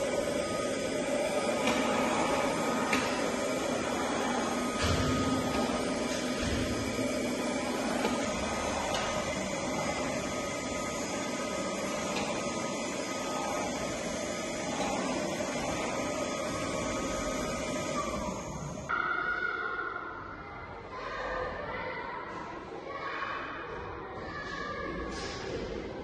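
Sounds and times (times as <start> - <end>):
robot vacuum cleaner whirring: 0.0 - 18.9.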